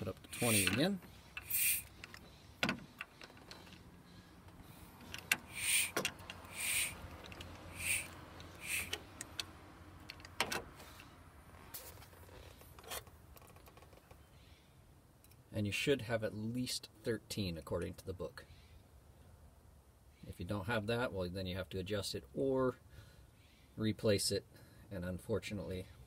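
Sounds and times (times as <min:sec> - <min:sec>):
hand vacuum pump strokes: 0:00.2 - 0:02.2, 0:05.2 - 0:07.0, 0:07.7 - 0:09.0.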